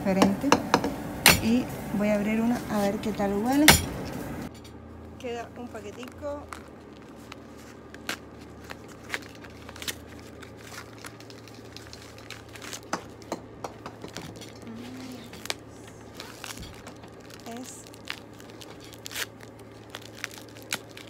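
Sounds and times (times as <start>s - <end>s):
paper mailer crinkling: 5.6s - 13.3s, 14.0s - 21.0s.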